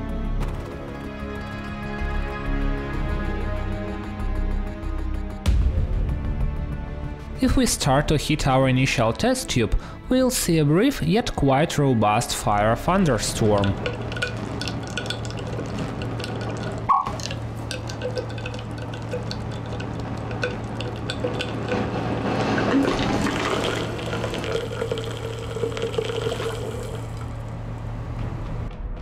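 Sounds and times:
chemical reaction crackling and popping: 13.0s - 27.6s.

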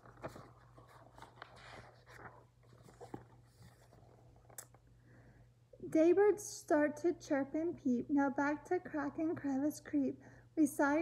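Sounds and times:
paper pages rustling: 0.0s - 4.8s.

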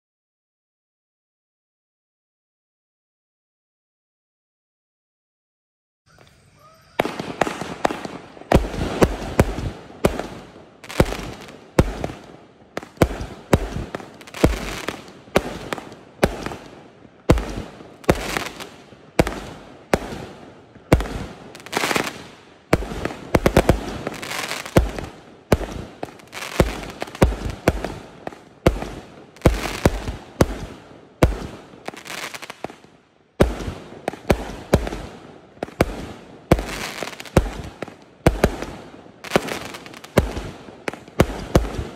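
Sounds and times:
fireworks launch bangs: 6.1s - 32.8s.

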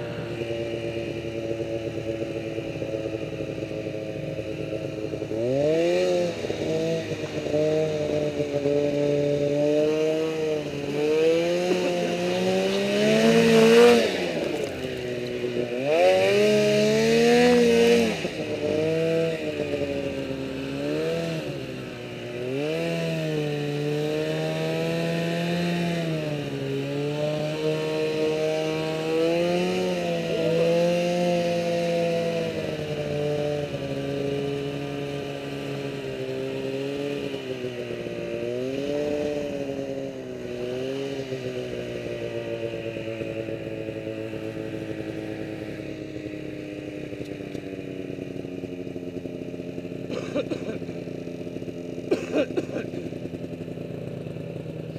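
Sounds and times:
snowmobile engine revving: 0.0s - 54.9s.

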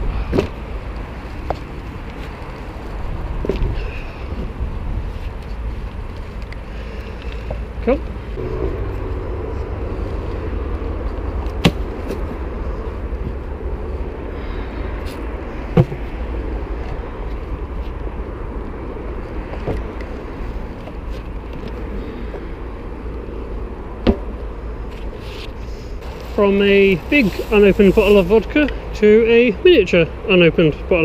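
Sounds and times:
stroller wheels rolling on pavement: 0.8s - 14.1s, 24.8s - 28.7s.

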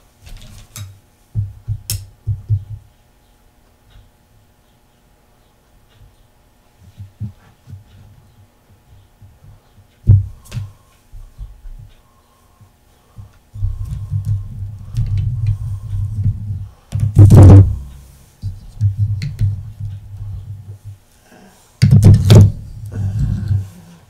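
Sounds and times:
loud thuds: 13.6s - 18.0s, 21.8s - 23.7s
rumbling and bumping on workbench: 13.6s - 21.0s, 21.8s - 23.8s.

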